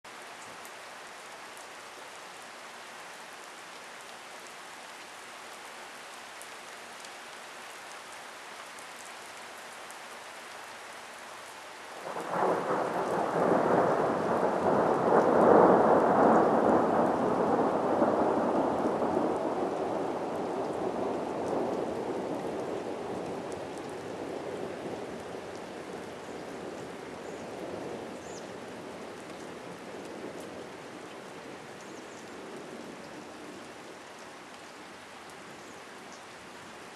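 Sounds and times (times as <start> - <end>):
steady rain: 0.0 - 36.9
thunder rumbling: 12.1 - 25.3.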